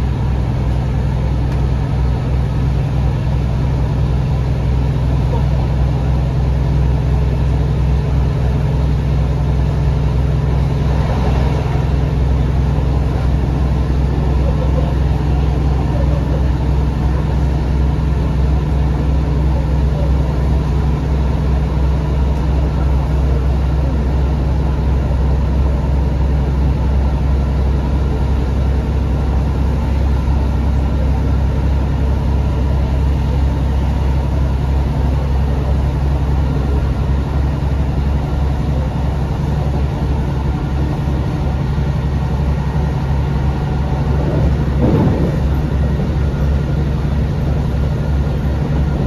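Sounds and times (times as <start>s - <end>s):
diesel engine drone: 0.0s - 49.0s
train wheels rumbling on rails: 0.0s - 49.0s.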